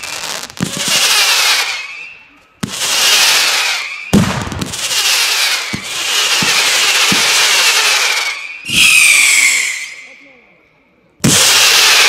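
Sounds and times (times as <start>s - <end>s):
whistling fireworks shrieking: 0.0s - 10.4s, 11.2s - 12.0s
dull firework bangs: 2.6s - 8.8s.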